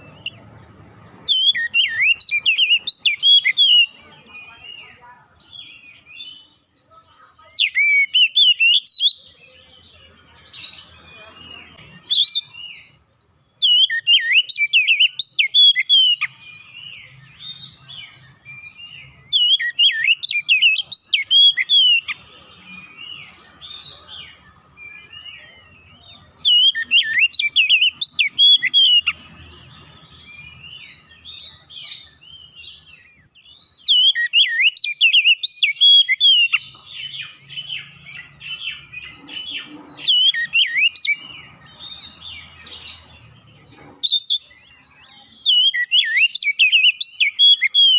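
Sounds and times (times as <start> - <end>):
bird chirping softly: 0.0 - 47.9
bird singing varied whistles: 1.3 - 3.9, 33.8 - 36.6, 45.5 - 47.9.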